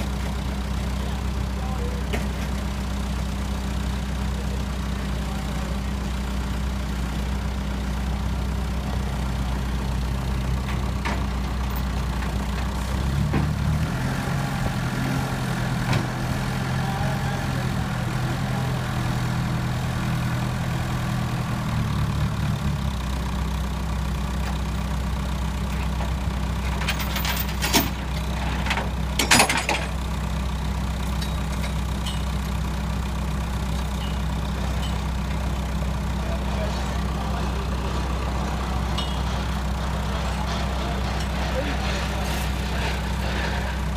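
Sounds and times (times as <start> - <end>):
forklift engine revving: 2.2 - 43.9
metal clanks: 25.8 - 30.0, 31.1 - 32.5, 36.6 - 43.9.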